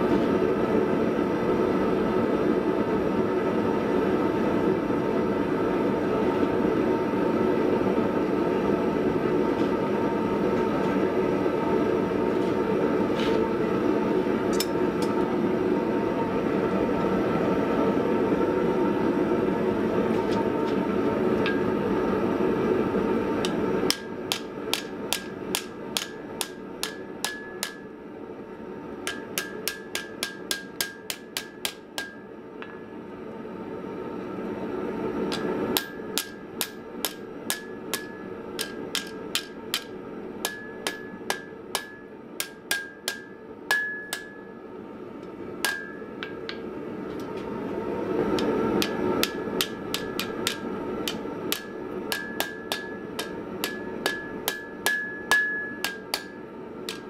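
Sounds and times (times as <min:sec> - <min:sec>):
hammer striking steel on anvil: 0:14.5 - 0:15.2, 0:21.4 - 0:21.8, 0:23.4 - 0:27.9, 0:29.0 - 0:32.9, 0:35.3 - 0:44.6, 0:45.6 - 0:46.6, 0:48.4 - 0:57.0.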